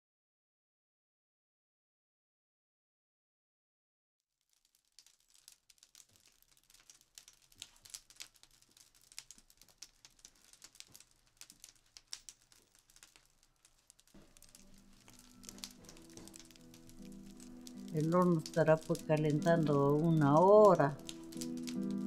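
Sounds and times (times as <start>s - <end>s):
wood fire crackling: 4.4s - 22.0s
music: 14.2s - 22.0s.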